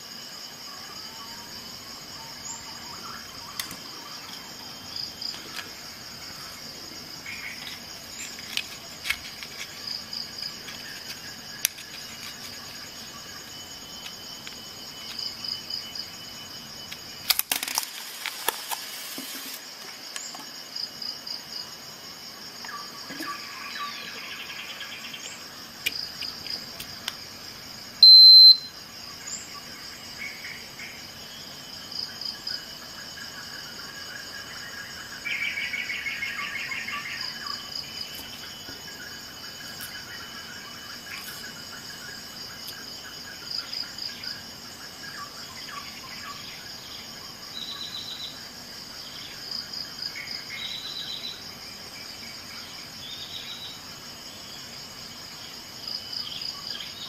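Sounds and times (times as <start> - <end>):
insects chirping: 0.0 - 57.0
short electronic beep: 28.0 - 28.7.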